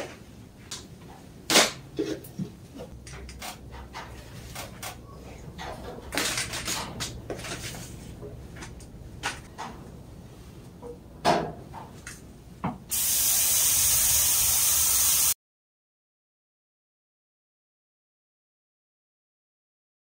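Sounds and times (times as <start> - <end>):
loud steady hiss: 12.9 - 15.4.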